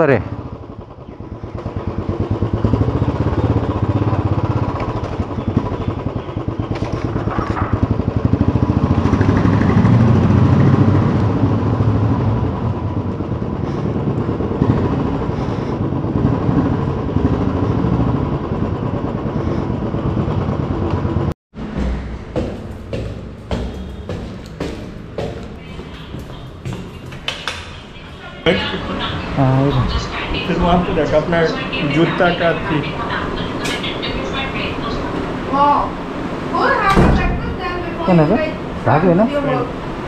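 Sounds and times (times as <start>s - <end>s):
motorcycle engine running: 0.0s - 35.8s
short knocks: 21.6s - 27.7s.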